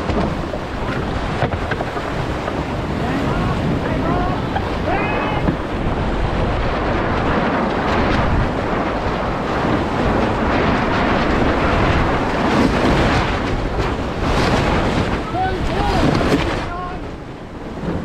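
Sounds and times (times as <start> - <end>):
water rushing along hull: 0.0 - 18.0
wind buffeting microphone: 0.0 - 18.0.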